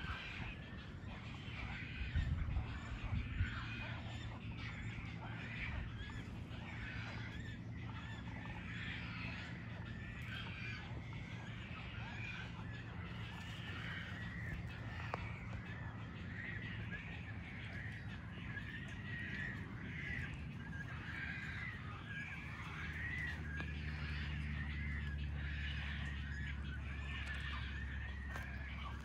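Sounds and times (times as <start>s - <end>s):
chorus of birds calling: 0.0s - 29.0s
low steady rumble: 0.0s - 29.0s.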